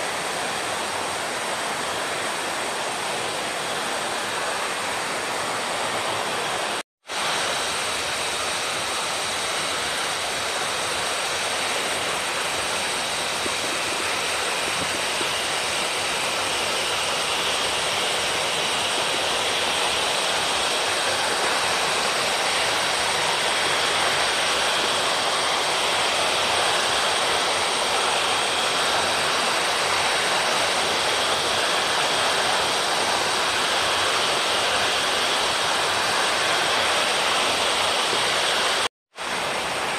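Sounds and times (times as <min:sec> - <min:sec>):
waterfall splashing on rocks: 0:00.0 - 0:39.9.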